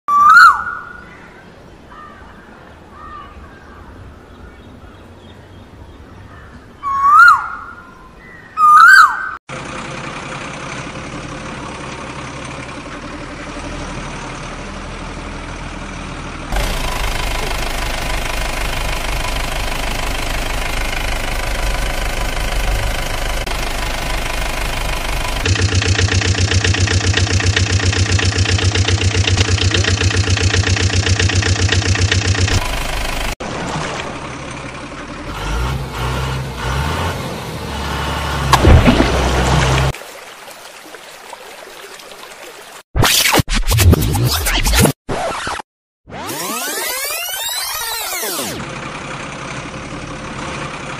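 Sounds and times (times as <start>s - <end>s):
whistle-like calls: 0.1s - 1.0s, 6.8s - 7.9s, 8.6s - 9.4s
vehicle engine running: 9.5s - 40.0s, 48.0s - 50.9s.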